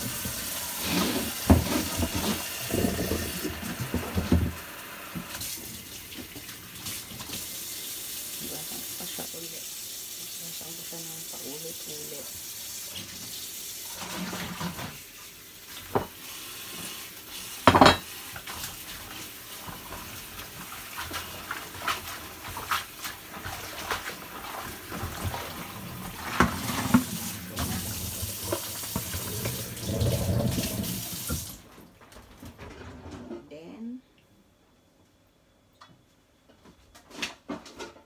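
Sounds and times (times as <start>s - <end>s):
tap running into sink: 0.0s - 7.4s, 26.0s - 31.6s.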